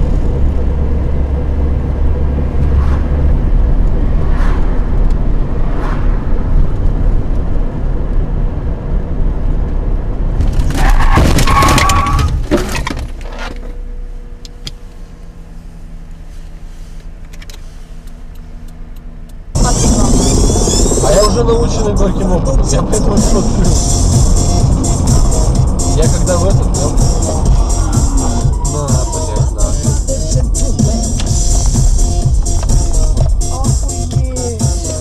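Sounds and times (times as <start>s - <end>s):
vehicle rumble on road: 0.0s - 35.0s
loud crash with breaking: 10.4s - 13.1s
brief squeal: 10.8s - 12.4s, 19.8s - 21.6s.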